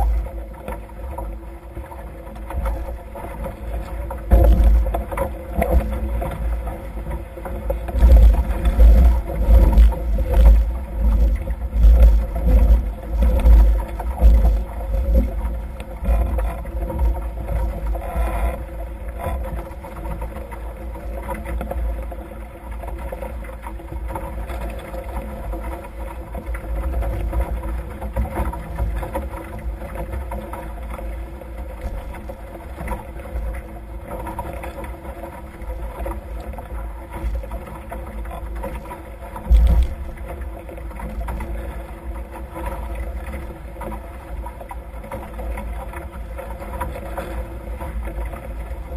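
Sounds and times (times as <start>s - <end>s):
water rushing past hulls: 0.0s - 48.9s.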